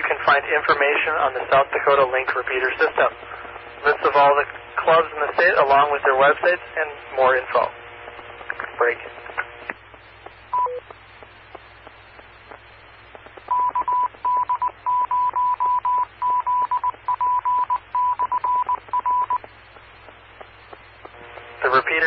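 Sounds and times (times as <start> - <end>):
faint radio hiss: 0.0 - 22.0
descending courtesy beep: 10.5 - 10.8, 13.5 - 19.4
morse code beeps: 10.5 - 10.8, 13.5 - 19.5.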